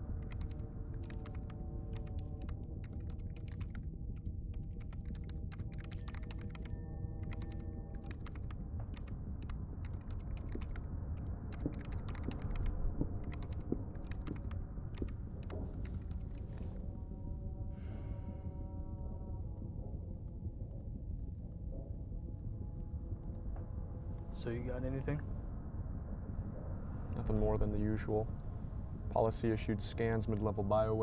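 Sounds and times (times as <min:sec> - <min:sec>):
low steady drone: 0:00.0 - 0:31.0
laptop keyboard typing: 0:00.2 - 0:10.8, 0:11.5 - 0:15.5.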